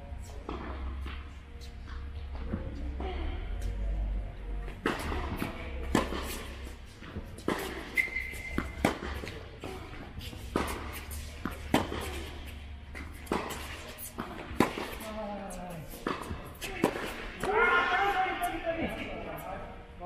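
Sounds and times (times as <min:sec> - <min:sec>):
tennis balls bouncing on court: 0:04.7 - 0:15.2
tennis balls struck with racquets: 0:04.7 - 0:18.5.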